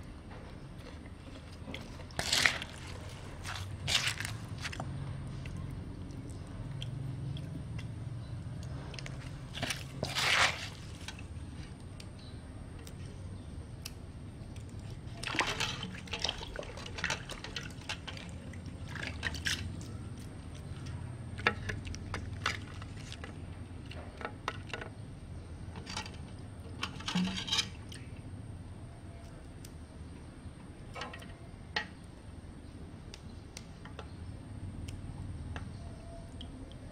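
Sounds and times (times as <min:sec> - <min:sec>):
low steady hum: 0:00.0 - 0:36.9
spatula squishing and scraping: 0:00.8 - 0:06.4, 0:08.6 - 0:11.8, 0:14.6 - 0:24.7.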